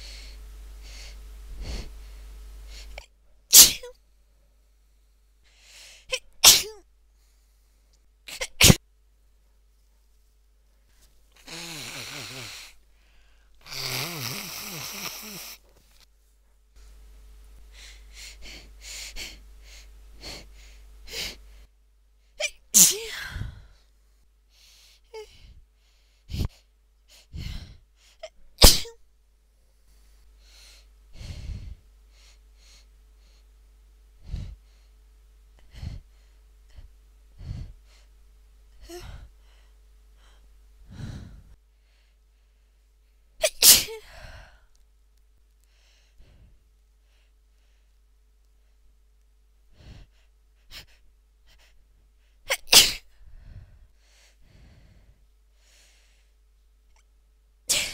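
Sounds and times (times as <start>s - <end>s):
woman sneezing: 3.5s - 4.0s, 6.1s - 6.8s, 8.3s - 8.8s, 22.4s - 23.4s, 28.2s - 29.0s, 43.4s - 44.1s, 52.5s - 53.1s, 57.7s - 57.9s
woman gasping breaths: 5.4s - 6.2s, 11.4s - 15.7s, 17.7s - 21.7s, 23.0s - 23.9s, 24.5s - 28.4s, 30.4s - 33.5s, 34.2s - 35.0s, 35.6s - 38.1s, 38.8s - 42.7s, 43.9s - 44.8s, 49.7s - 52.4s, 53.1s - 56.4s.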